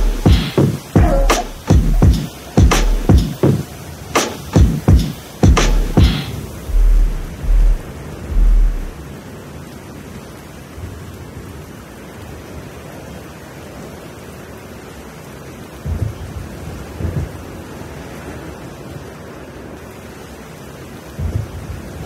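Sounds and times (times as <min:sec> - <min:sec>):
deep bass hit: 0:00.0 - 0:00.4, 0:01.0 - 0:03.2, 0:06.7 - 0:09.0
low thumps: 0:00.0 - 0:03.3, 0:04.6 - 0:09.0
electronic beat music: 0:00.0 - 0:09.0
rain-like hiss of noise: 0:00.0 - 0:22.0.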